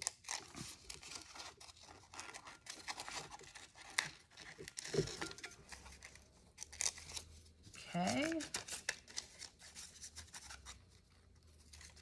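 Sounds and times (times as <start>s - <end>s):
paper crinkling and rustling: 0.0s - 12.0s
scissors snipping paper: 7.9s - 10.8s.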